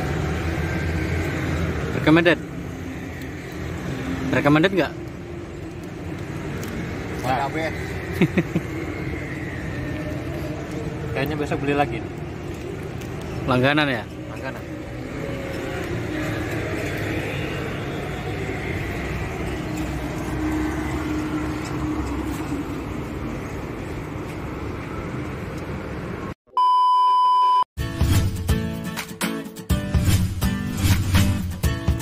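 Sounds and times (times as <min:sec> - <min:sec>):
passing cars rumble: 0:00.0 - 0:26.4
electronic beep: 0:26.5 - 0:27.6
music: 0:27.8 - 0:32.0.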